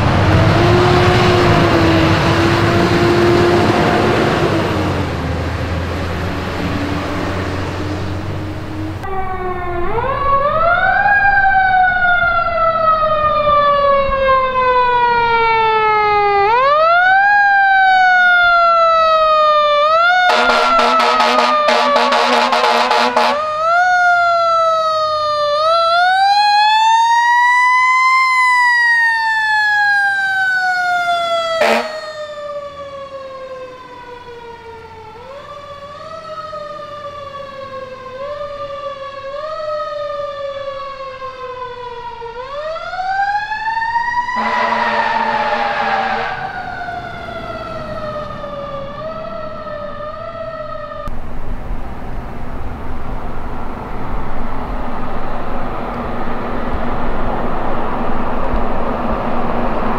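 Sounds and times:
fire truck siren wailing: 0:00.0 - 0:59.9
horn blast: 0:20.3 - 0:23.5, 0:31.6 - 0:32.2, 0:44.4 - 0:46.8.

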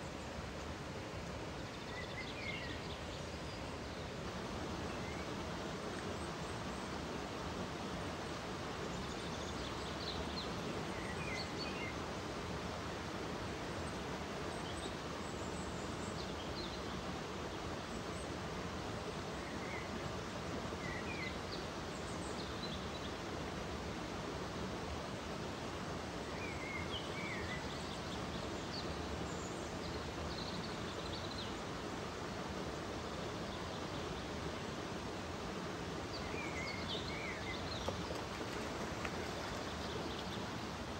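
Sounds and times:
stream running over rocks: 0:00.0 - 0:40.9.

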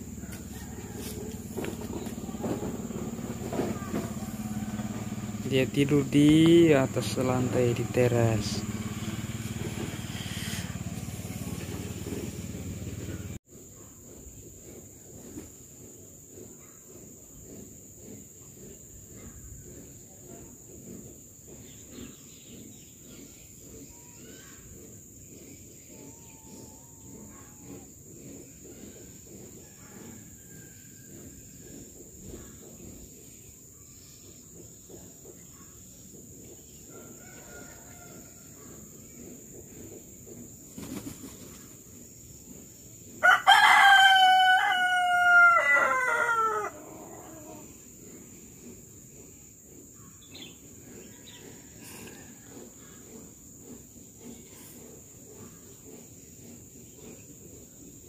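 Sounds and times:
rooster crowing: 0:00.0 - 0:02.8, 0:03.7 - 0:05.4, 0:36.9 - 0:38.9, 0:43.2 - 0:47.8.

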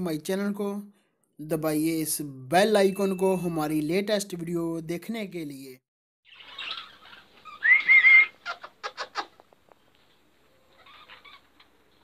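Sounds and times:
loud rising bird call: 0:06.3 - 0:08.4.

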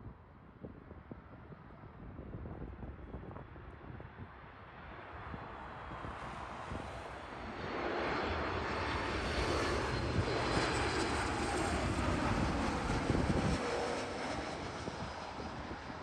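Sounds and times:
jet airliner passing overhead: 0:03.3 - 0:16.0.

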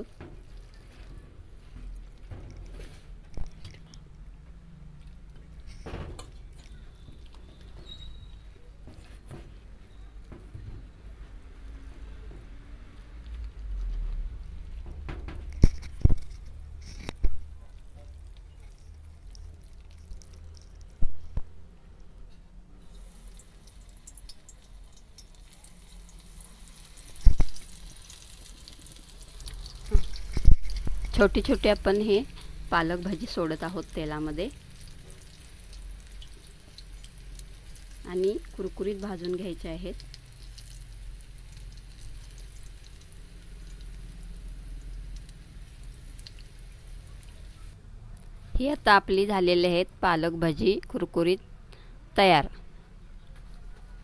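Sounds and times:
batter sizzling in hot oil: 0:22.8 - 0:47.8.

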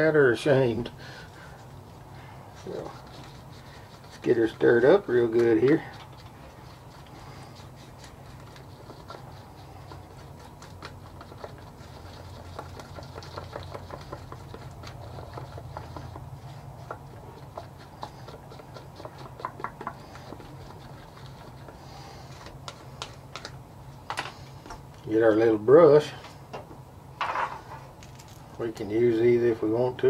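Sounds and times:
steady low hum: 0:00.0 - 0:30.0
stick scraping a cup: 0:02.6 - 0:23.2.

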